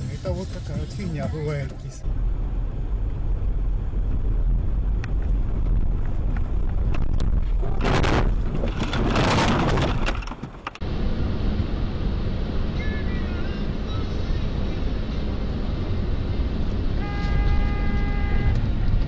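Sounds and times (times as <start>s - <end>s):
car engine and road rumble: 0.0s - 19.0s
loud noisy crunching: 7.4s - 10.4s.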